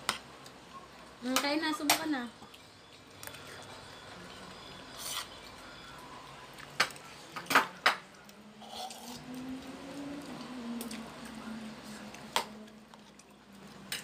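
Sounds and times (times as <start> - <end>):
dishes and spoons clinking: 6.8 - 9.2.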